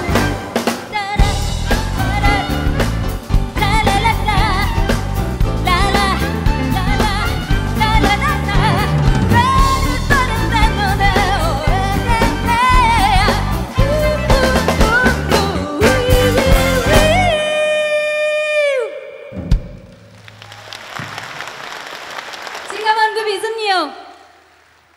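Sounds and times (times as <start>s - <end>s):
woman singing with vibrato: 0.0s - 19.4s
pop band playing: 0.0s - 19.8s.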